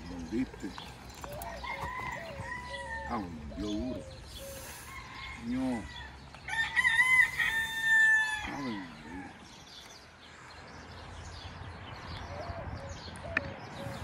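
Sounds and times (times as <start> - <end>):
rooster crowing: 1.4 - 3.2, 4.7 - 9.0.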